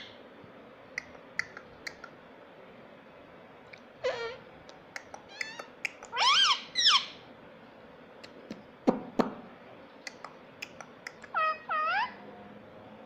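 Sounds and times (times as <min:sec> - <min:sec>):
parakeet squawking: 0:04.0 - 0:04.4, 0:05.2 - 0:07.2, 0:11.1 - 0:12.2.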